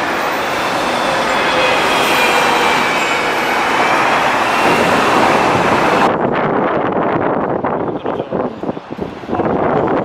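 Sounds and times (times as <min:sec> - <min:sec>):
high whine of tram wheels: 0:00.0 - 0:07.3
city street traffic: 0:00.0 - 0:10.0
tram rolling on rails: 0:00.0 - 0:10.0.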